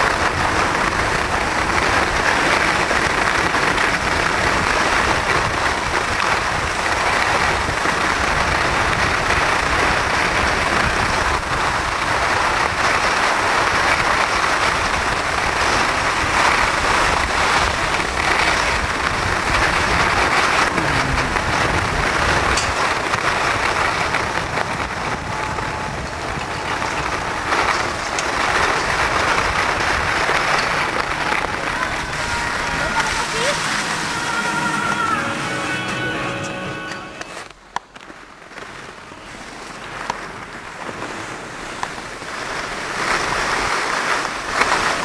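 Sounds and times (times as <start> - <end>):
wind buffeting microphone: 0.0 - 34.6
skis hissing on snow: 27.1 - 36.1, 42.3 - 45.0.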